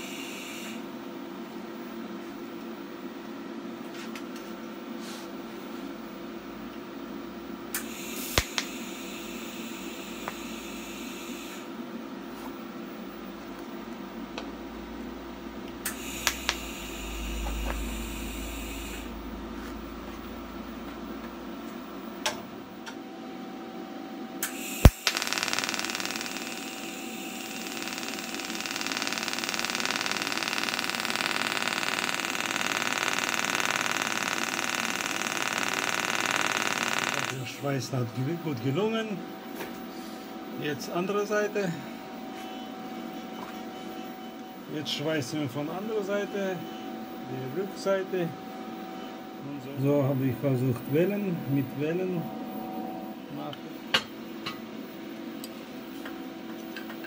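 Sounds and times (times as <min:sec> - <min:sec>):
welding arc hissing: 0:07.8 - 0:11.7, 0:15.8 - 0:20.9, 0:24.4 - 0:37.5
sharp clicks: 0:15.8 - 0:16.7.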